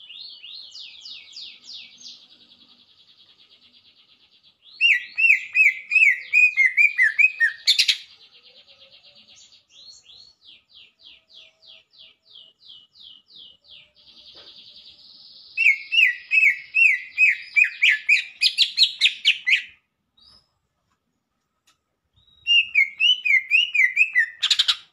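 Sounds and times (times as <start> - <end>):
bird singing whistled notes: 4.6 - 8.3, 14.8 - 20.5, 22.1 - 24.9.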